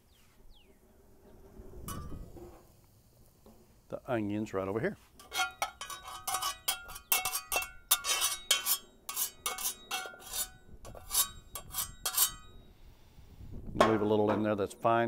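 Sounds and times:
metal spatula scraping skillet: 1.5s - 2.7s, 5.0s - 12.6s.

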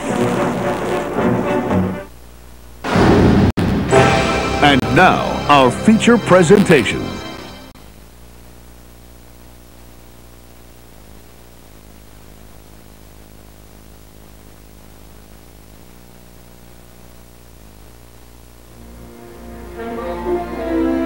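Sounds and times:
music: 0.0s - 2.2s, 2.9s - 7.8s, 18.7s - 21.0s
low electrical hum: 0.0s - 3.0s, 6.3s - 21.0s
tape hiss: 0.0s - 21.0s.

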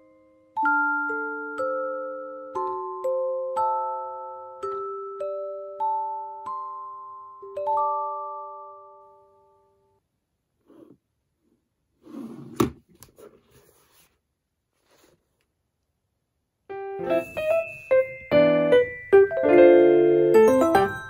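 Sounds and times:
electric piano background music: 0.0s - 9.8s, 16.7s - 21.0s.

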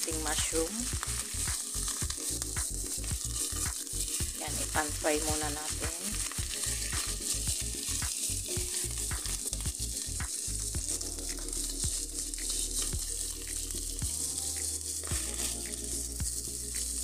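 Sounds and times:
vegetables sizzling in hot oil: 0.0s - 17.0s
wooden spatula scraping a pan: 3.3s - 16.1s.

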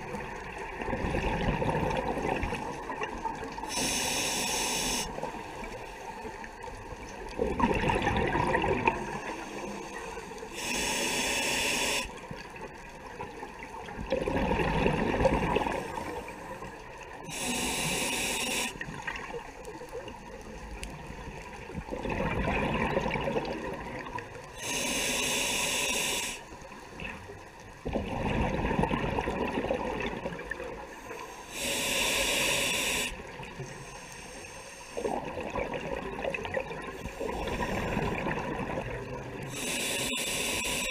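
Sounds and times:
bubbling exhale underwater: 0.8s - 2.7s, 7.4s - 9.2s, 14.0s - 16.1s, 21.8s - 24.1s, 27.8s - 30.6s, 35.0s - 39.7s
hissing regulator inhale: 3.6s - 5.6s, 9.0s - 12.2s, 15.7s - 18.9s, 24.6s - 26.8s, 30.8s - 35.2s, 39.5s - 40.9s.

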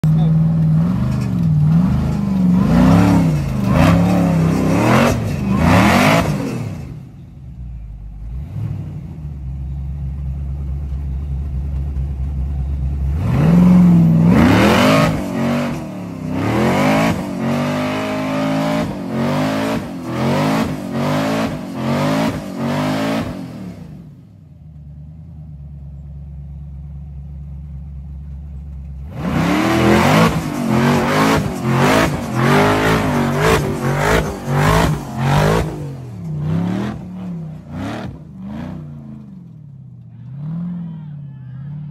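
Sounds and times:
buggy engine revving: 0.0s - 41.9s.

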